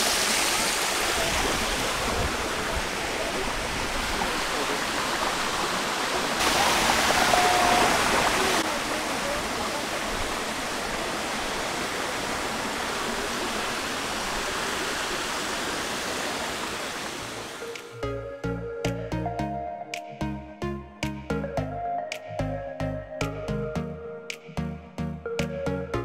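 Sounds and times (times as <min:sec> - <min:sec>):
stream rushing over rocks: 0:00.0 - 0:18.0.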